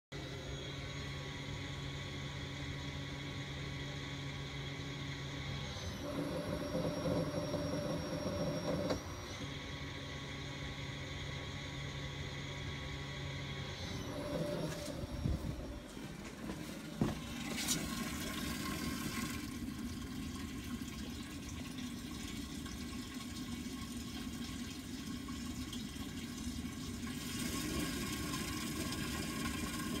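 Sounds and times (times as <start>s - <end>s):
electric fuel pump whine: 0.2s - 30.0s
fuel pouring into plastic jug: 16.6s - 30.0s.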